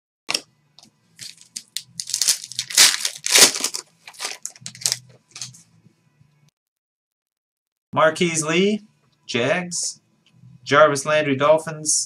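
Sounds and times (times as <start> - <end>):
foil wrapper tearing and crinkling: 1.2 - 5.5.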